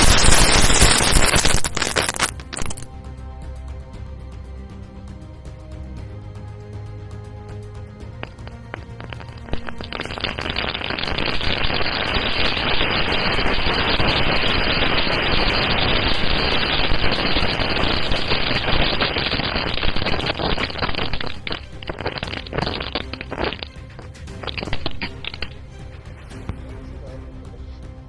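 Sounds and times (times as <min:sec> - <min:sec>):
firecrackers crackling: 0:00.0 - 0:02.9, 0:08.1 - 0:26.6.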